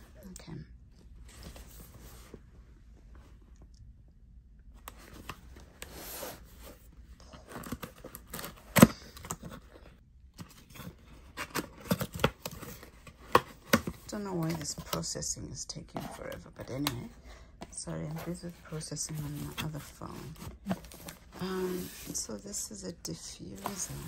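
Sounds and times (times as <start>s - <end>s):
cardboard rustling and scraping: 1.3s - 2.4s, 4.9s - 14.9s, 17.8s - 24.0s.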